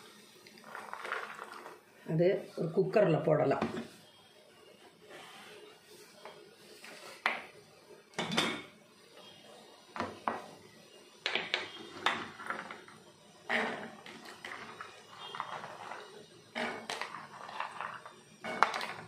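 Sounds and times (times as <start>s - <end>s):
kitchenware clattering on countertop: 8.2s - 8.7s.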